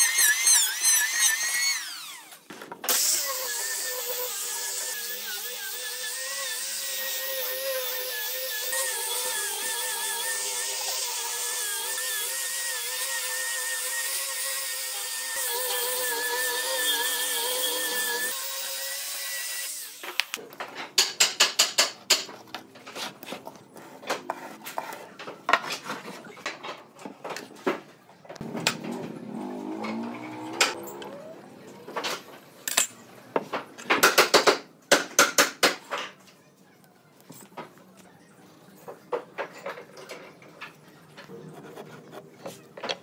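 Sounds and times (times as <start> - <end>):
wood scraping on bench: 22.5 - 26.5.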